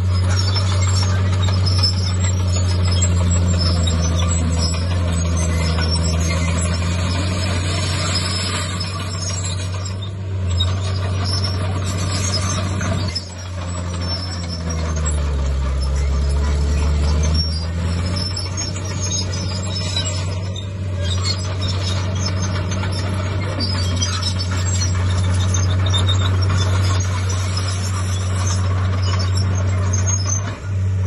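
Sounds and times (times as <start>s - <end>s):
bulldozer diesel engine running: 0.0s - 31.0s.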